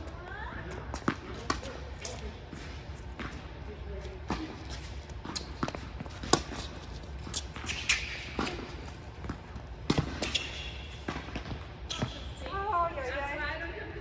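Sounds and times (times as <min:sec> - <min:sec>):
tennis ball bouncing on court: 0:00.7 - 0:03.5, 0:04.2 - 0:12.6
tennis ball struck by rackets: 0:04.3 - 0:06.7, 0:07.3 - 0:12.2.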